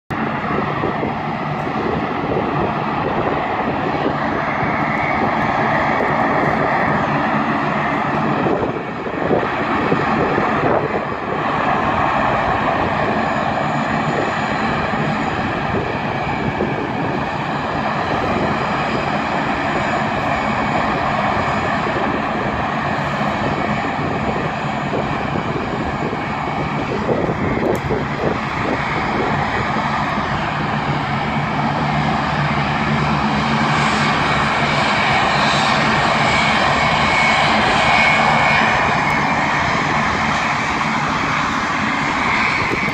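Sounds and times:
turboprop engines droning: 0:00.1 - 0:42.9.

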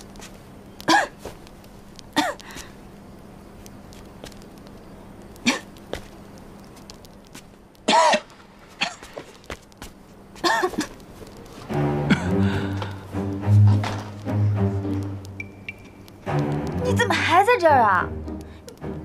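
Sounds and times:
person coughing: 0:00.9 - 0:01.2, 0:02.2 - 0:02.4, 0:05.4 - 0:05.7, 0:07.9 - 0:09.1, 0:10.4 - 0:11.0, 0:12.1 - 0:12.4.

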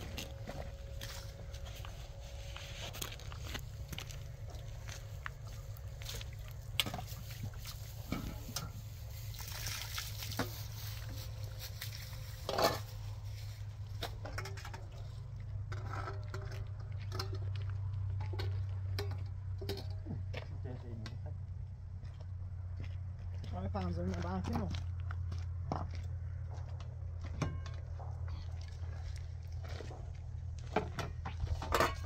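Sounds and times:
water sloshing in metal bowls: 0:05.4 - 0:17.5, 0:18.3 - 0:19.9.

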